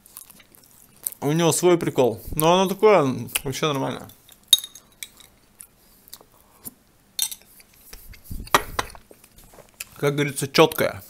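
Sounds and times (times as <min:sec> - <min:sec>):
spoon scraping and tapping: 0:07.2 - 0:09.0.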